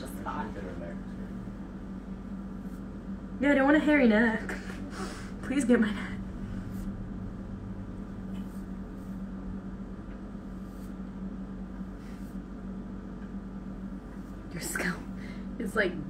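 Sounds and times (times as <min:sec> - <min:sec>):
steady low hum: 0:00.0 - 0:16.0
razor scraping scalp: 0:02.4 - 0:03.2, 0:08.2 - 0:09.4, 0:10.3 - 0:12.5.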